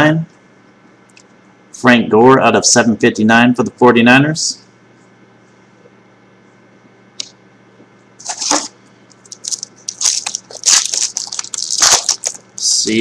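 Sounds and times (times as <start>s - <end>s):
wrapper crinkling and tearing: 8.2s - 12.7s.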